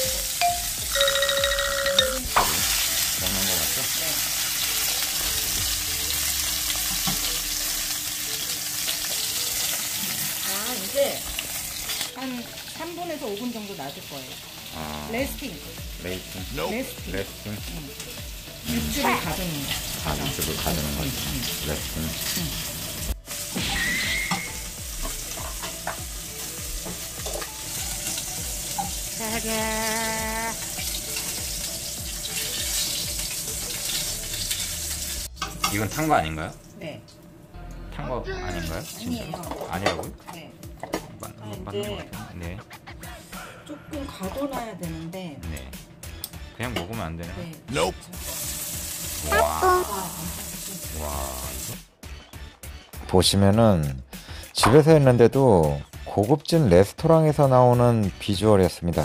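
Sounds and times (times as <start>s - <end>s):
steak sizzling in frying pan: 0.0s - 36.2s, 48.1s - 51.9s.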